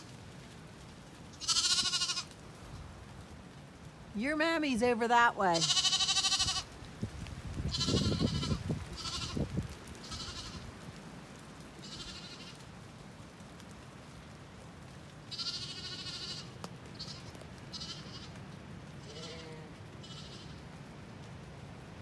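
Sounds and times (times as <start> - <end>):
lamb bleating: 1.4 - 2.3, 5.6 - 6.7, 7.7 - 9.4, 10.0 - 10.6, 11.8 - 12.5, 15.3 - 18.3, 19.0 - 20.6.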